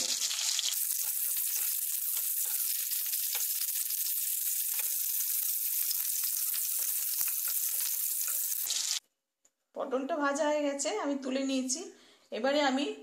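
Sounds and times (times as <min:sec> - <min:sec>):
vegetables sizzling in oil: 0:00.0 - 0:09.0.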